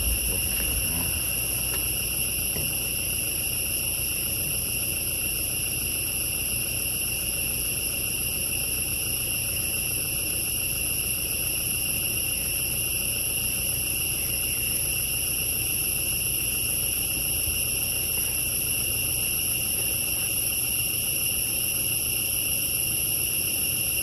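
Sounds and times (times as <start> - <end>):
low rumble: 0.0 - 2.9
shrill forest insects chorus: 0.0 - 24.0.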